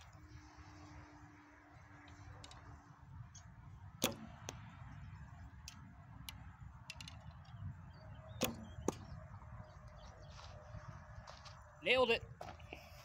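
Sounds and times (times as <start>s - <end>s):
arrow striking target: 3.9s - 4.7s, 8.4s - 9.1s.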